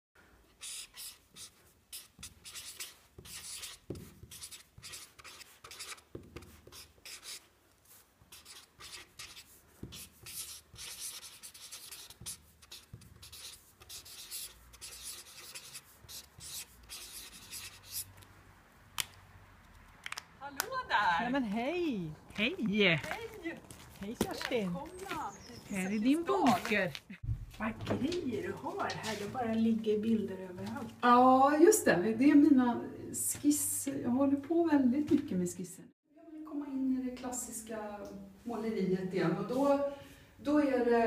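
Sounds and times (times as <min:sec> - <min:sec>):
marker scratching on paper: 0:00.6 - 0:18.2.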